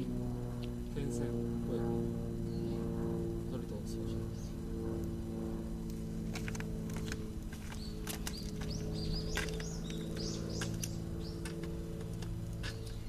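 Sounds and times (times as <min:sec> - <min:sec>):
steady low drone: 0:00.0 - 0:13.0
small birds chirping: 0:02.3 - 0:13.0.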